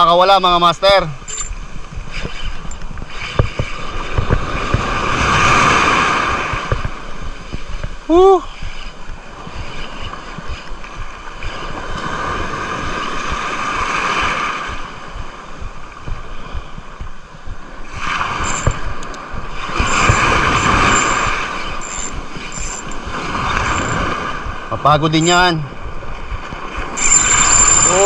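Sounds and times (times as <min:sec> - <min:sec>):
surf washing over rocky shore: 0:00.0 - 0:28.0
wind buffeting microphone: 0:00.0 - 0:28.0
fishing reel being cranked: 0:00.2 - 0:12.1, 0:18.0 - 0:24.2, 0:25.0 - 0:25.6, 0:26.8 - 0:28.0.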